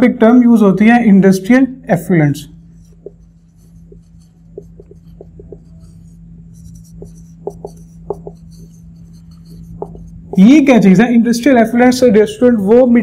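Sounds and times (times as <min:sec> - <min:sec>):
steady low hum: 0:00.0 - 0:13.0
marker squeaking on whiteboard: 0:02.6 - 0:10.8.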